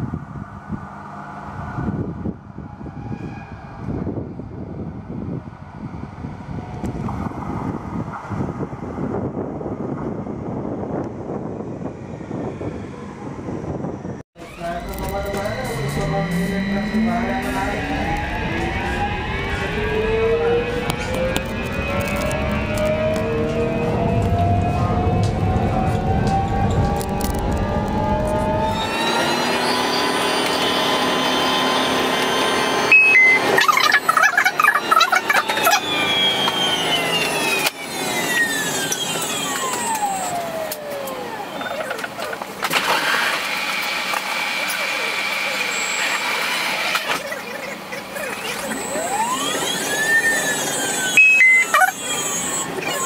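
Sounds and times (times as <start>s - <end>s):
train rumble: 0.0s - 29.8s
metro train whine: 0.0s - 41.6s
two-note falling chime: 32.9s - 33.6s, 51.2s - 51.8s
two-tone falling electronic beep: 32.9s - 36.6s, 51.1s - 52.0s.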